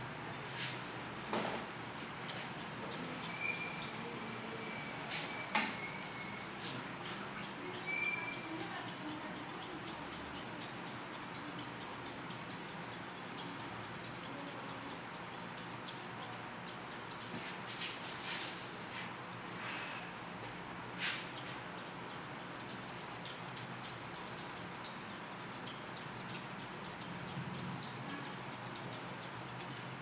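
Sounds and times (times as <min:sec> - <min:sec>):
scissors snipping hair: 0:02.2 - 0:04.1, 0:06.6 - 0:17.4, 0:21.4 - 0:30.0.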